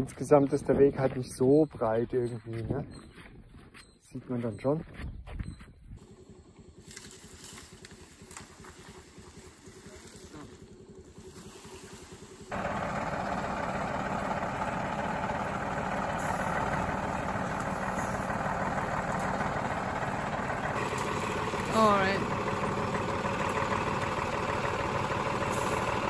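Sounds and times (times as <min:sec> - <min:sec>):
diesel engine running: 0:06.0 - 0:26.0.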